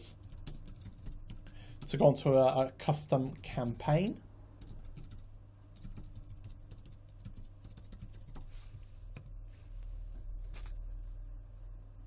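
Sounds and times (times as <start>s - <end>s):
faint low hum: 0.0s - 12.0s
typing on keyboard: 0.2s - 2.0s, 3.3s - 8.5s.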